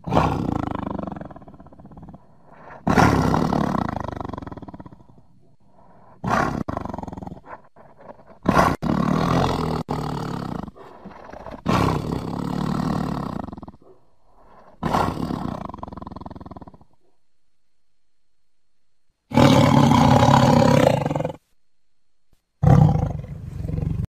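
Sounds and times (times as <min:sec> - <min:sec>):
tiger roaring: 0:00.0 - 0:17.1, 0:19.3 - 0:21.4, 0:22.6 - 0:24.0.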